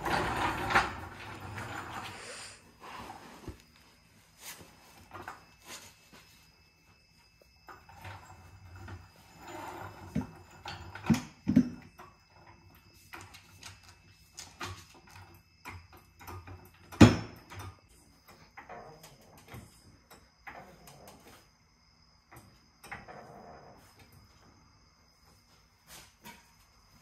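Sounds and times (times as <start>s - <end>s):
floor jack clicking and clanking: 0.0s - 2.5s, 7.7s - 12.2s.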